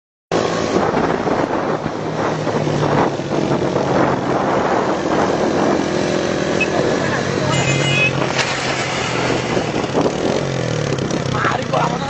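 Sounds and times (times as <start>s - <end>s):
wind rushing across microphone: 0.4s - 12.0s
motorcycle engine running: 9.7s - 12.0s.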